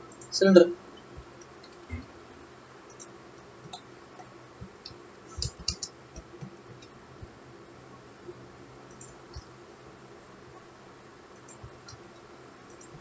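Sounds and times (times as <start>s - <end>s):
faint steady hum: 0.0s - 13.0s
keyboard and mouse clicks: 1.5s - 2.1s, 2.9s - 7.0s, 8.9s - 9.5s, 11.4s - 13.0s.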